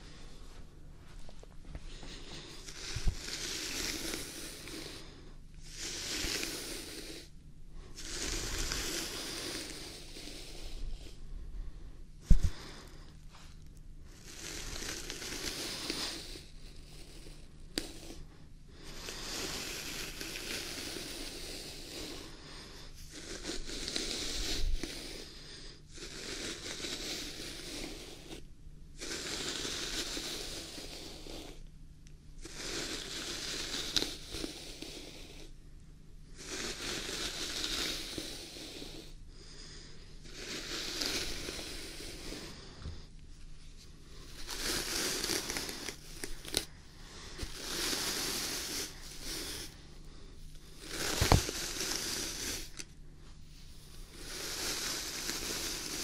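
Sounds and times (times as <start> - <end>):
brush stroking through beard: 2.0 - 5.0, 5.7 - 7.3, 8.0 - 10.8, 40.3 - 42.8, 43.4 - 49.9, 50.6 - 52.8, 53.6 - 56.0.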